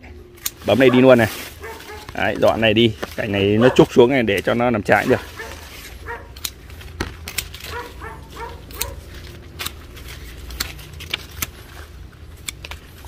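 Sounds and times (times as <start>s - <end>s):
pruning shears snipping: 0.3s - 13.0s
dog yipping: 0.9s - 2.1s, 3.6s - 3.9s, 5.0s - 6.4s, 7.7s - 9.0s.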